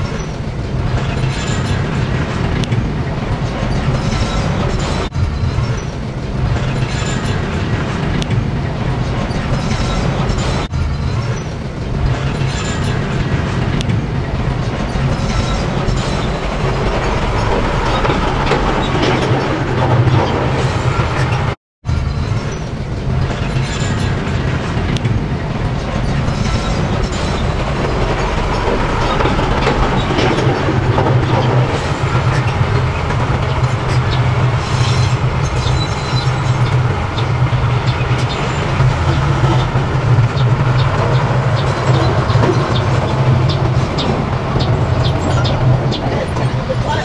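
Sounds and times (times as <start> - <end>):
steel tracks clanking: 0.0 - 47.0.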